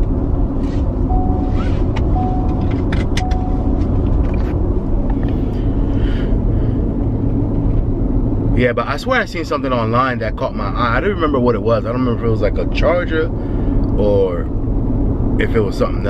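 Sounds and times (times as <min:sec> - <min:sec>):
low vehicle cabin rumble: 0:00.0 - 0:16.0
short warning chime: 0:01.1 - 0:03.8
seatbelt buckle clicks: 0:01.5 - 0:05.4.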